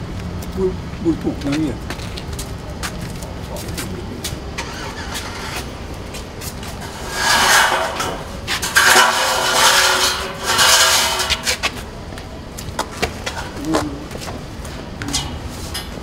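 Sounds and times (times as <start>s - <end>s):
scraping and rubbing of materials: 4.6s - 11.9s.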